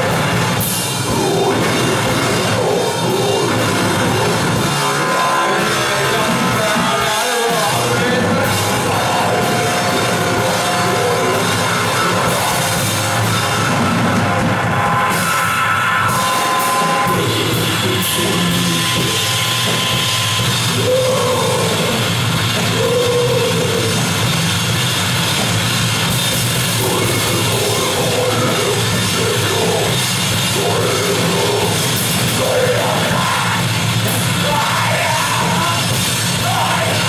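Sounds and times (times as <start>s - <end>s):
heavy rock band playing: 0.0s - 37.0s.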